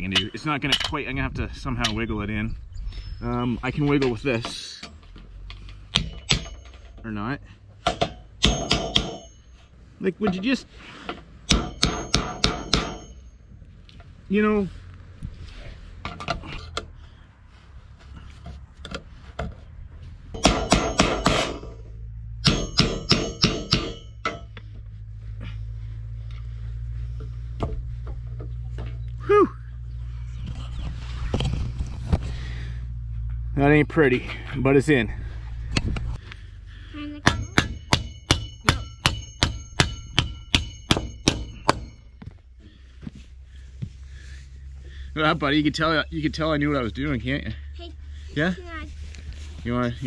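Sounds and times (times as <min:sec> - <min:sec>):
hammer striking metal: 0:05.9 - 0:07.0, 0:07.8 - 0:09.6, 0:11.5 - 0:13.4, 0:20.4 - 0:21.8, 0:22.4 - 0:24.6, 0:37.2 - 0:42.2.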